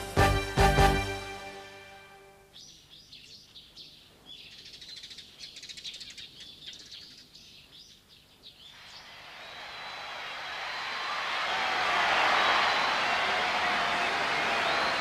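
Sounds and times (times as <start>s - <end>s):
small birds chirping: 2.4s - 10.0s.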